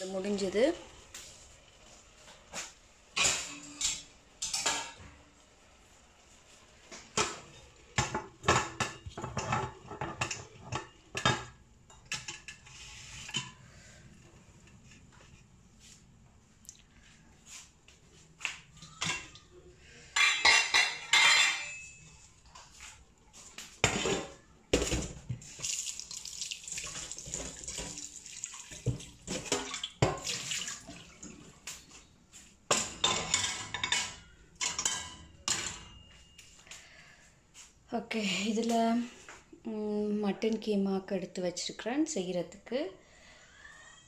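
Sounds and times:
metal pot clanking: 7.1 - 13.6, 32.7 - 36.4
tap water running into pot: 25.3 - 31.4
water swishing in pot: 25.4 - 31.7.

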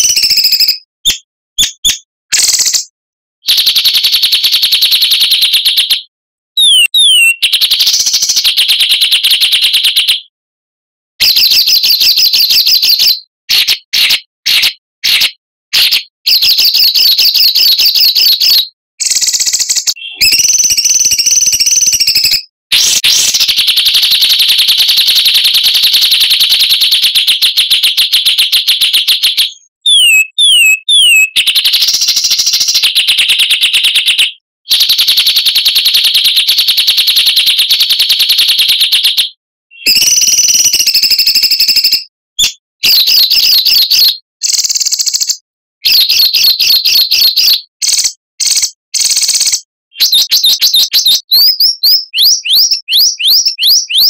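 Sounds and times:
songbird trilling: 6.6 - 7.5, 19.0 - 23.4, 29.8 - 31.4.

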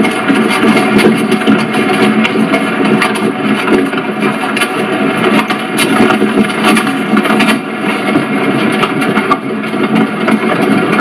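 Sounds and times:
carriage rolling rumble: 0.0 - 11.0.

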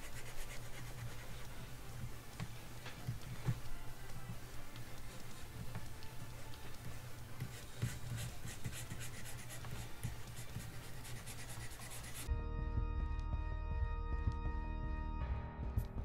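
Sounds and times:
music with held tones: 11.1 - 16.0.

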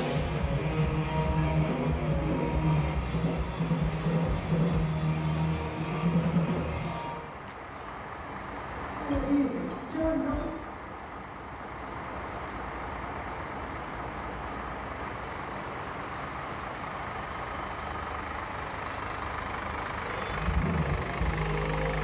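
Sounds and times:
loud music: 0.0 - 7.2, 20.3 - 22.0
coach engine idling: 0.0 - 22.0.

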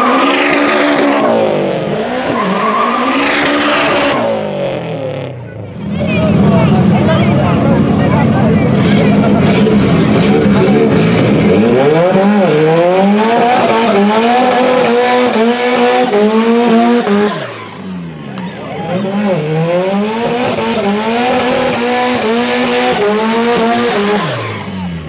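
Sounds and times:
car engine revving hard: 0.0 - 25.0
tyres squealing: 2.1 - 4.2.

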